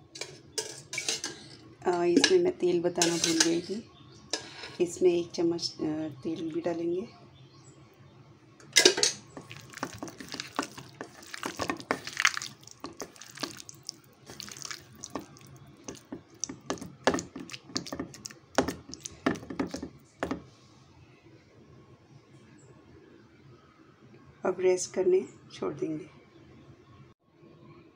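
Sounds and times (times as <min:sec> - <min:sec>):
hand squelching meat in marinade: 0:09.3 - 0:19.9.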